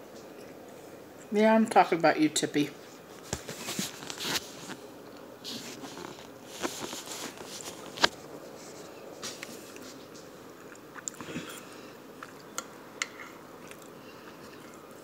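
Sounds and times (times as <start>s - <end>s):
chewing and mouth noises: 9.3s - 15.0s.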